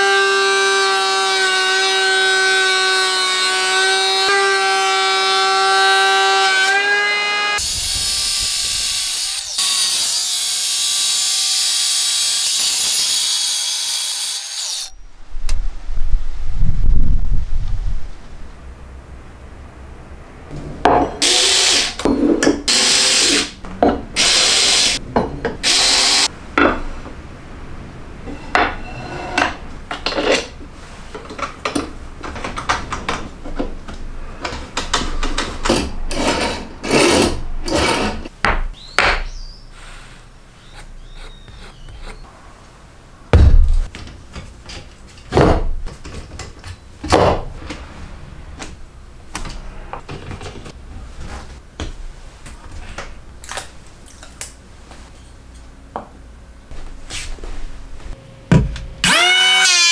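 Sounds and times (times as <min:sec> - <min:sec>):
heavy thump: 0:43.3 - 0:43.9
power tool bursts: 0:59.0 - 0:59.9.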